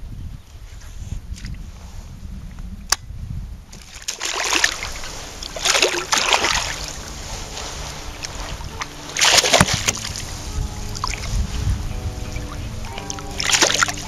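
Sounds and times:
fish splashing at water surface: 0:03.8 - 0:10.2.

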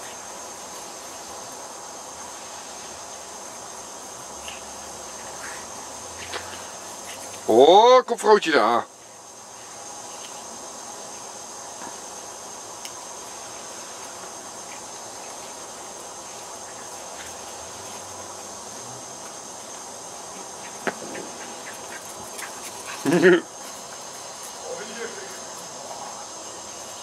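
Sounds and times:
background hiss: 0:00.0 - 0:27.0.

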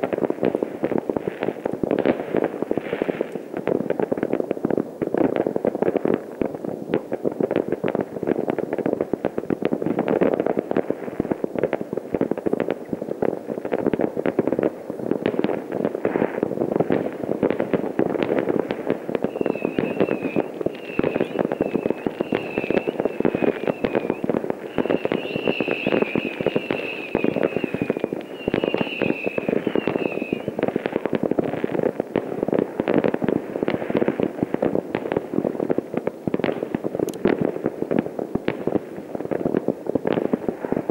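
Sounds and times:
distant fireworks bangs and crackles: 0:00.0 - 0:40.9
high wavering whistle: 0:19.3 - 0:30.5.

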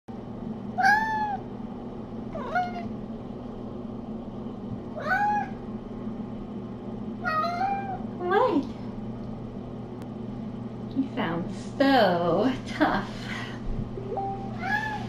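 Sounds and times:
cat meowing: 0:00.8 - 0:01.4, 0:02.4 - 0:02.9, 0:05.0 - 0:05.6, 0:07.2 - 0:08.0, 0:14.6 - 0:15.0.

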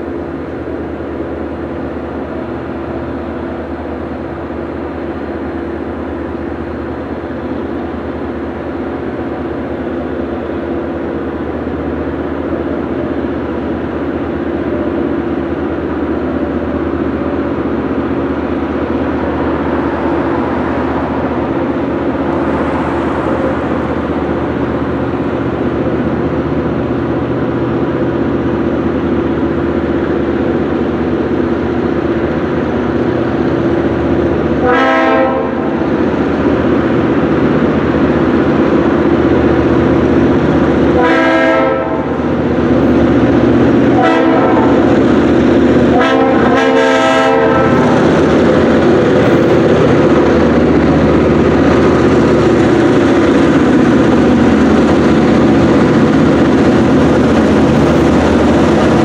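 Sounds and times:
diesel locomotive engine drone: 0:00.0 - 0:59.0
train horn blasts: 0:34.6 - 0:35.8, 0:40.9 - 0:42.2, 0:43.9 - 0:44.9, 0:45.9 - 0:48.0.

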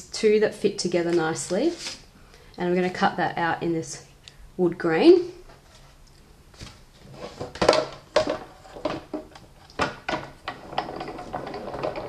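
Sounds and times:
plastic and metal plates clacking: 0:07.3 - 0:12.0.

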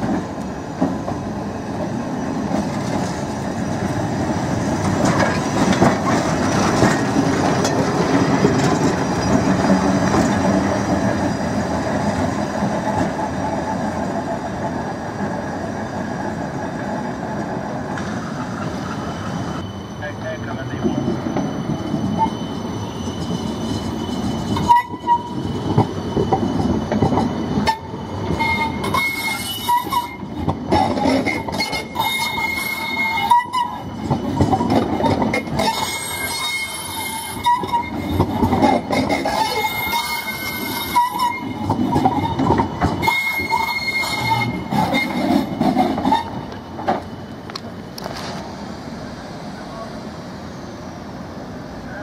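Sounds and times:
tram rolling on track: 0:00.0 - 0:52.0
high wheel squeal: 0:06.3 - 0:11.7, 0:18.2 - 0:51.1.

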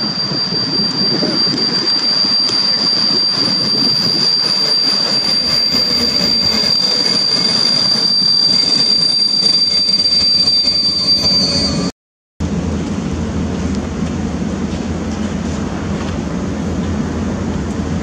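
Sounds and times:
high-pitched wheel squeal: 0:00.0 - 0:12.0
train wheels rumbling: 0:00.0 - 0:18.0.

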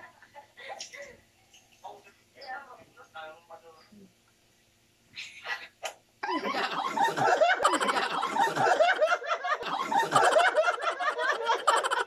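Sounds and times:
group of people laughing: 0:06.2 - 0:12.0.

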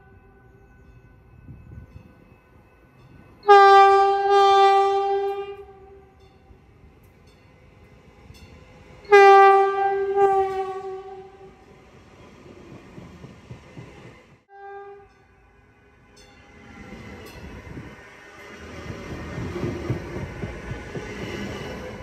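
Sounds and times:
railcars rumbling past: 0:00.0 - 0:22.0
train horn blasts: 0:03.4 - 0:06.2, 0:09.0 - 0:11.6, 0:14.5 - 0:15.4.

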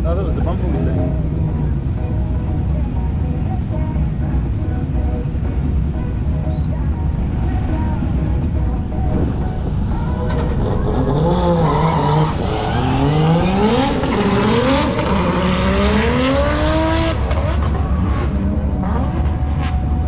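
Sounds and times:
low rumble of engines: 0:00.0 - 0:20.0
tyre squeal: 0:10.3 - 0:14.0
car engine revving hard: 0:10.4 - 0:19.9.

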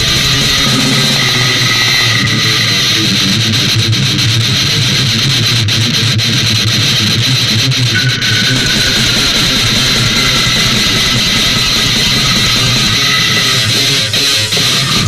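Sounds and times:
high held guitar note: 0:00.0 - 0:04.0, 0:07.9 - 0:15.0
extreme metal music: 0:00.0 - 0:15.0.

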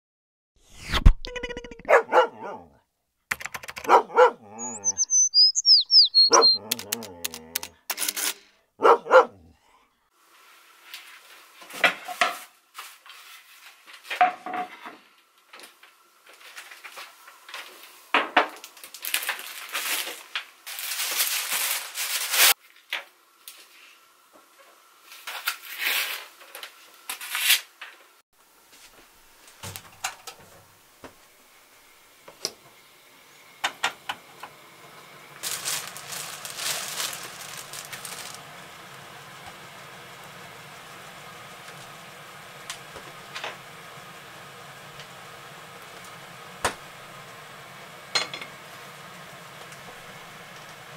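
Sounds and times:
dog barking: 0:01.8 - 0:02.8, 0:03.8 - 0:05.0, 0:06.2 - 0:07.2, 0:08.8 - 0:09.6
rustling: 0:35.4 - 0:38.6.

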